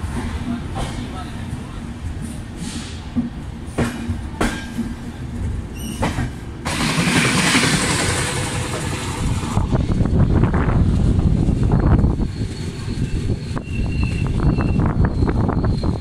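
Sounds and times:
clattering rumble of wheels on track: 0.0s - 16.0s
passing train rushing: 0.0s - 16.0s
train wheels clicking over rail joints: 2.2s - 10.2s.

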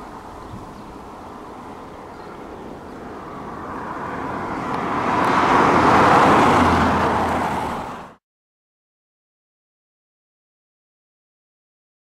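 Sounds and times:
road vehicle passing: 0.0s - 8.2s.

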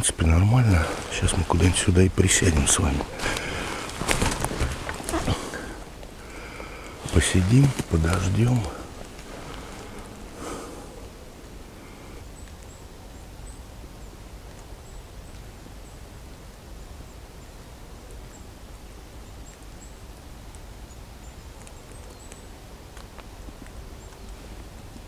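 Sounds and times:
low hiss and rumble: 0.0s - 25.0s
soft clicks and rustles: 0.7s - 10.4s, 21.5s - 25.0s.

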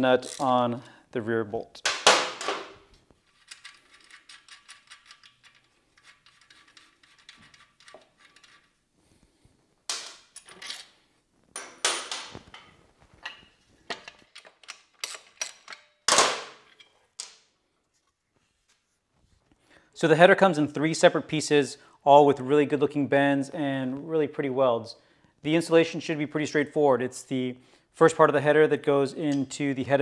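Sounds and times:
ratchet wrench clicking: 0.2s - 0.5s
metal tools clanking and knocking: 2.3s - 2.8s, 10.0s - 11.0s, 11.6s - 16.0s.

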